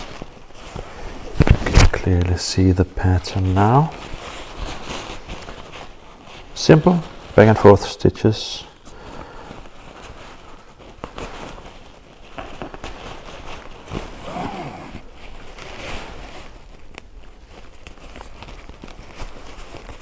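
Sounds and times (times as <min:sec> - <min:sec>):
fabric rustling and crinkling: 0:00.0 - 0:20.0
thread zipping through cloth: 0:13.9 - 0:15.4.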